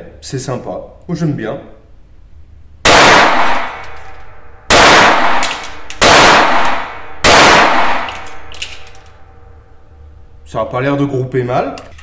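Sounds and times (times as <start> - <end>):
pistol shots: 2.8 - 4.1, 4.7 - 8.9.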